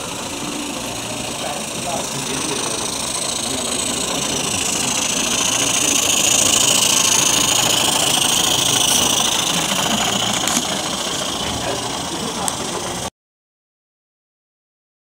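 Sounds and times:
model steam locomotive hissing: 0:00.0 - 0:13.1.

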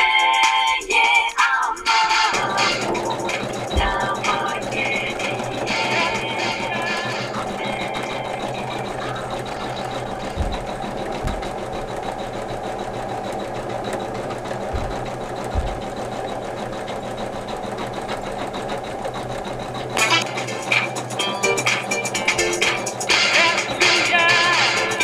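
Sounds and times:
embroidery machine stitching: 0:01.8 - 0:25.0
brief low bumps: 0:03.7 - 0:04.4, 0:09.0 - 0:12.0, 0:14.6 - 0:16.4.

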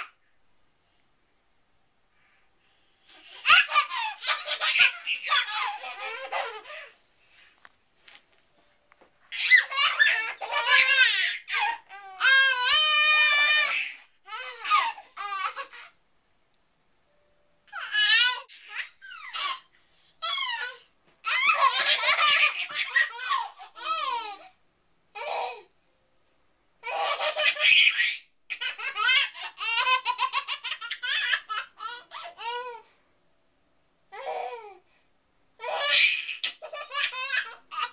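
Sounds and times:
babies laughing and squealing: 0:03.1 - 0:07.0, 0:09.3 - 0:15.9, 0:17.7 - 0:24.4, 0:26.8 - 0:32.7, 0:35.6 - 0:37.9.

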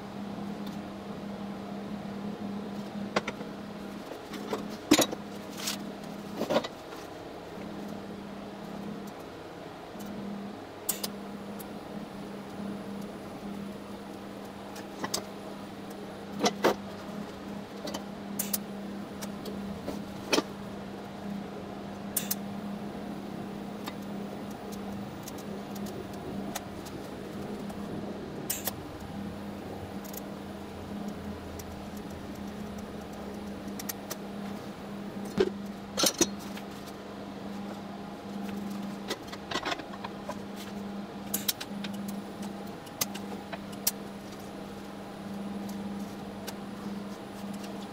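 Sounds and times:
welding hum: 0:00.0 - 0:47.9.

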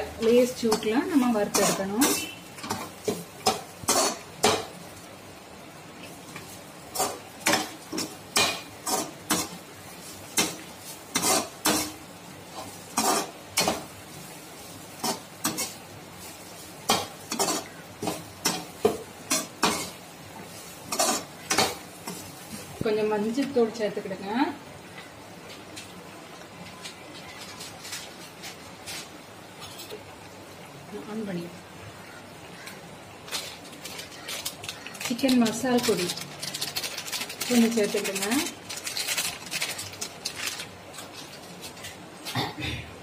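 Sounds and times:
faint sizzle: 0:00.0 - 0:43.0
metal spatula scraping a pan: 0:00.6 - 0:04.7, 0:10.2 - 0:13.9, 0:14.9 - 0:15.8, 0:16.8 - 0:22.3.

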